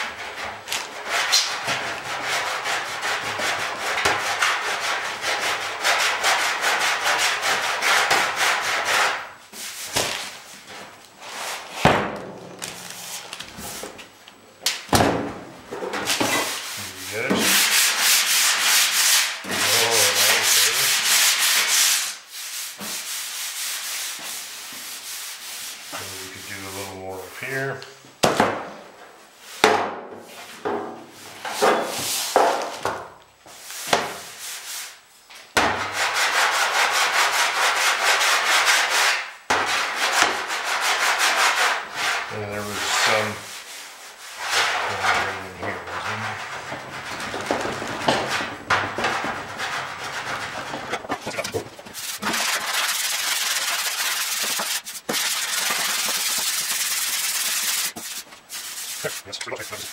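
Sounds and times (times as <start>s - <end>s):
hand sanding metal: 0.2s - 10.0s, 16.2s - 27.6s, 35.8s - 47.4s, 48.2s - 59.9s.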